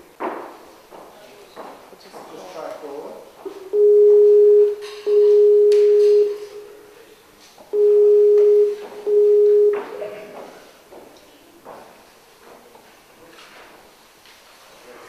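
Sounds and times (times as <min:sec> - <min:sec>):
call ringing tone: 0:03.7 - 0:06.8, 0:07.7 - 0:10.0.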